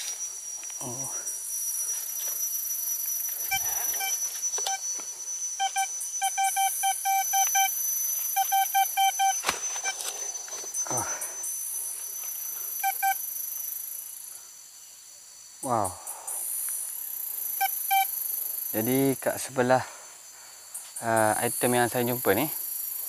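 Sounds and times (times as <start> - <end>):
insect drone: 0.0 - 23.0
metal detector beeps: 3.4 - 11.2, 12.2 - 13.2, 17.6 - 18.1.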